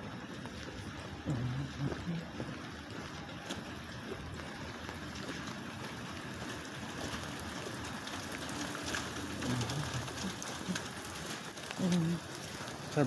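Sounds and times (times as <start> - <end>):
raindrops ticking: 0.0 - 13.0
steady rain falling: 0.0 - 13.0.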